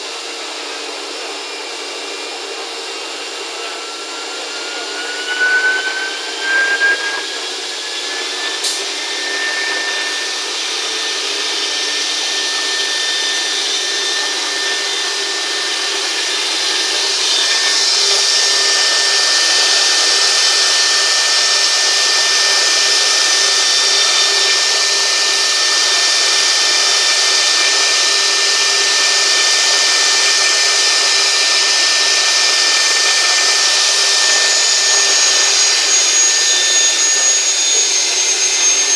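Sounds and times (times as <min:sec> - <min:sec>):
router spindle whine: 0:00.0 - 0:38.9
wood cutting rush: 0:00.0 - 0:38.9.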